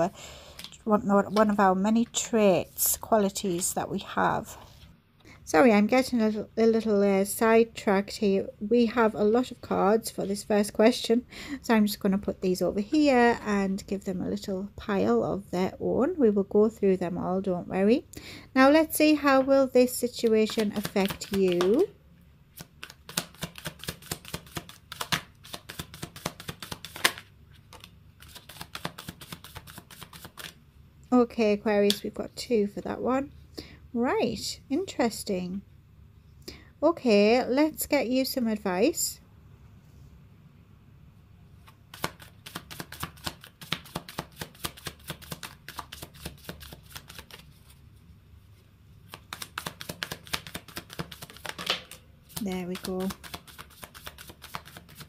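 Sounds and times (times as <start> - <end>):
cards being shuffled: 20.4 - 21.9, 22.5 - 30.6, 41.6 - 47.8, 49.1 - 55.0.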